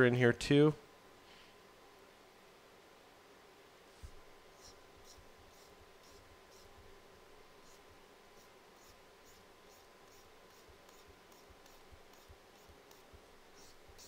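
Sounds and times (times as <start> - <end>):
pen scratching on tablet: 4.6 - 6.8, 7.6 - 14.0.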